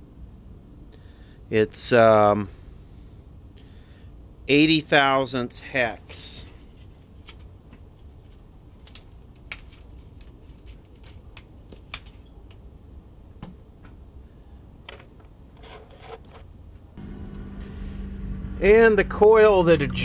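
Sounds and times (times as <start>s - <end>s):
steady low hum: 0.0s - 8.8s, 12.3s - 20.0s
handling rustle: 6.3s - 12.7s.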